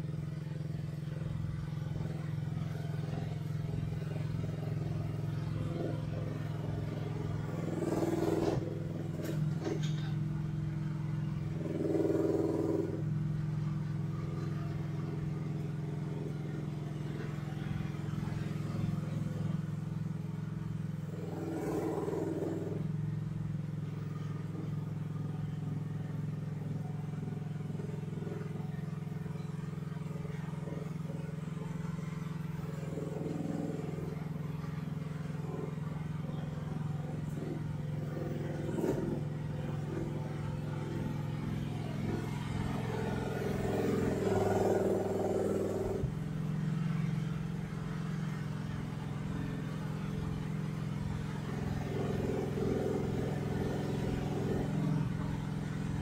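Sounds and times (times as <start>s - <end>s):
excavator engine idling: 0.0s - 56.0s.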